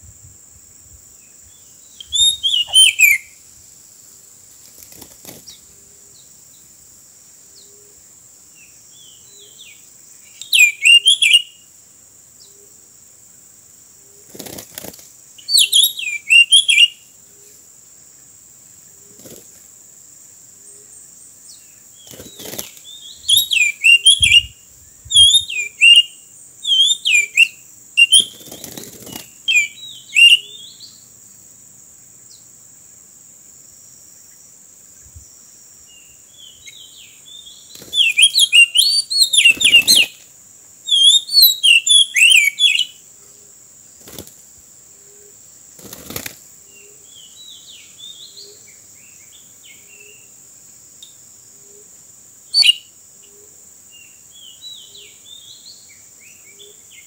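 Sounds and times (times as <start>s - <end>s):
high insect drone: 0.0s - 57.0s
bird whistling song: 1.9s - 3.4s, 9.0s - 11.6s, 15.4s - 17.0s, 22.1s - 28.6s, 29.2s - 31.0s, 36.4s - 40.2s, 40.8s - 43.0s, 52.5s - 52.9s.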